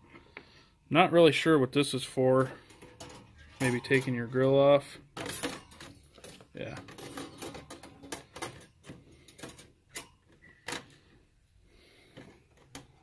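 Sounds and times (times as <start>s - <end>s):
metal grill grate clinking: 2.6s - 10.4s.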